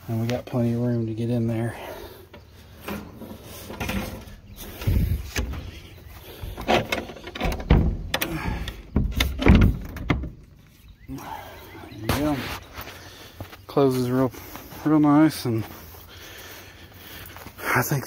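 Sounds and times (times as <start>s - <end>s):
wooden door knocks and thumps: 6.6s - 10.4s.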